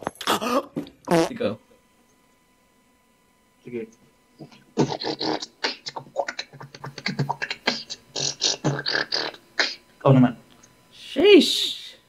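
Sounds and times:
beatboxing: 4.4s - 9.8s.

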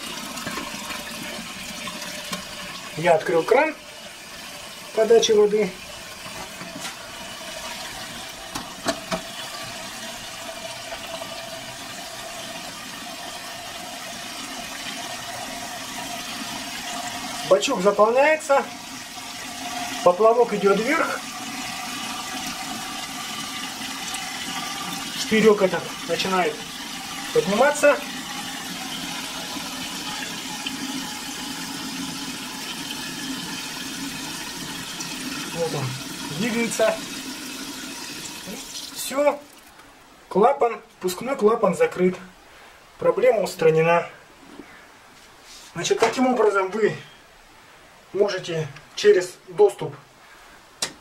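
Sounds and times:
water refilling toilet cistern: 0.0s - 39.9s.

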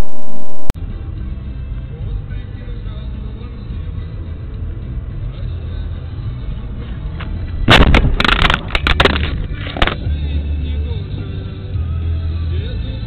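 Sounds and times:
car rumbling on road: 3.2s - 11.8s
vehicle collision bangs: 7.6s - 10.1s.

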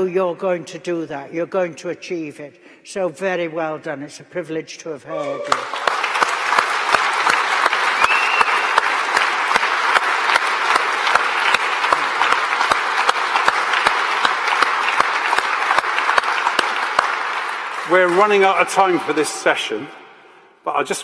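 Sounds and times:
audience applauding: 5.2s - 19.8s
hands clapping close by: 5.5s - 19.0s.

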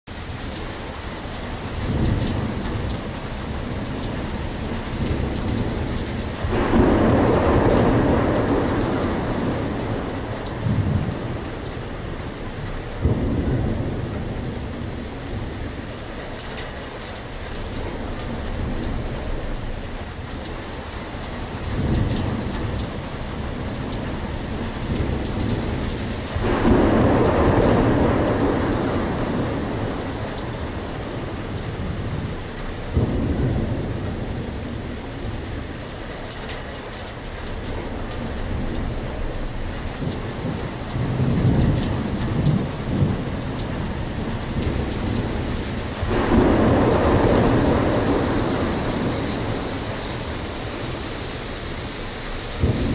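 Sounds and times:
steady rain: 0.1s - 52.9s
thunder rumbling: 0.2s - 52.9s.

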